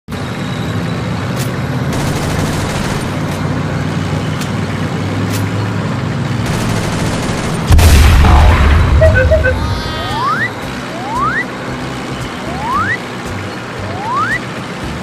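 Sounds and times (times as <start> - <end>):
heavy truck engine running: 0.1 - 15.0
rapid gunfire: 1.9 - 3.3, 6.4 - 8.4.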